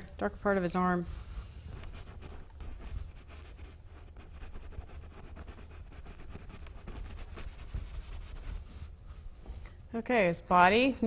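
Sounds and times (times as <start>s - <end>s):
paintbrush scrubbing canvas: 1.1s - 9.0s.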